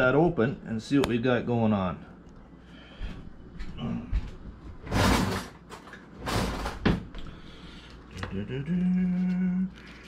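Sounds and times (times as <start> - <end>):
man humming: 8.1 - 9.8.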